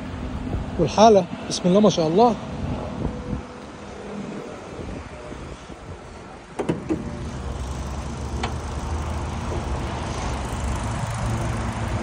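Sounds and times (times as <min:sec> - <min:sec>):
low vehicle hum: 0:02.4 - 0:12.0
car hood latch clicks: 0:06.6 - 0:07.1.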